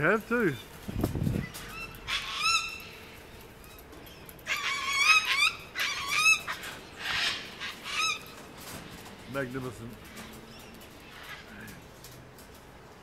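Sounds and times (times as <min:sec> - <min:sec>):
cockatoos squawking: 0:01.3 - 0:03.3, 0:04.4 - 0:08.4.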